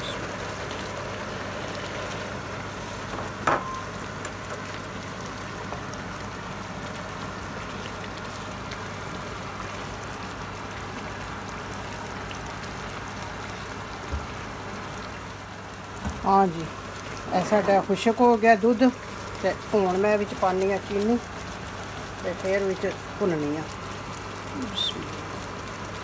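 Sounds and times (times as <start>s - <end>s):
mixture bubbling and sizzling: 0.0s - 26.0s
spatula stirring in pan: 17.1s - 25.0s.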